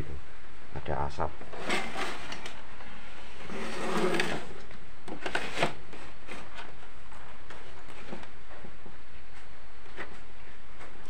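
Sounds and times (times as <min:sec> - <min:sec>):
plastic cover rubbing and scraping: 0:01.5 - 0:02.6, 0:03.4 - 0:06.9.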